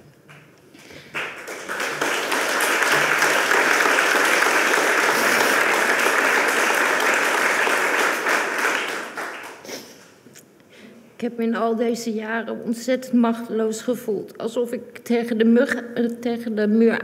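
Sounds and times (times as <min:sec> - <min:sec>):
audience applauding: 0:00.8 - 0:10.2.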